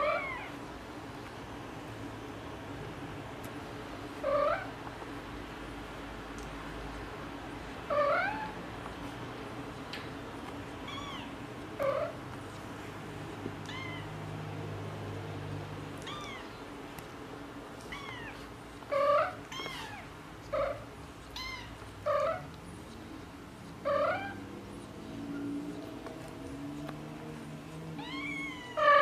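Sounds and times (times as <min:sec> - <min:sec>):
cat meowing: 0:00.0 - 0:00.5, 0:10.8 - 0:12.2, 0:13.6 - 0:14.2, 0:16.0 - 0:16.5, 0:17.9 - 0:22.5, 0:28.0 - 0:29.0.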